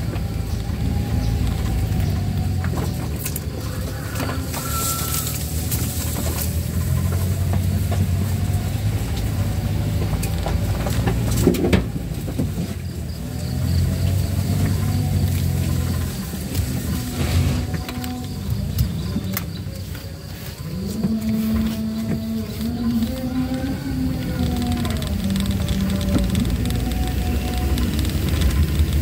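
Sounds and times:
vehicle engine running at low speed: 0:00.0 - 0:29.0
vehicle body knocks and rattles: 0:09.4 - 0:13.2.

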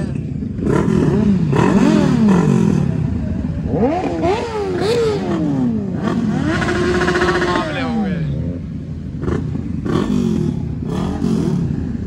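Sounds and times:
motorcycle engines revving: 0:00.0 - 0:12.0.

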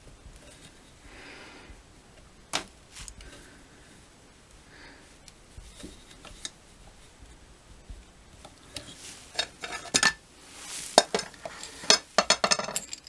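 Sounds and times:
small metal parts clinking: 0:09.0 - 0:10.2, 0:10.9 - 0:13.0.

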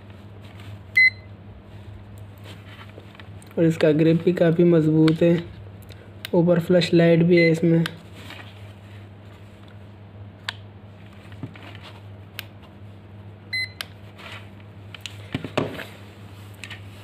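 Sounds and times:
steady low hum: 0:00.0 - 0:17.0
clamp meter beep: 0:01.0 - 0:01.3, 0:13.5 - 0:13.8.

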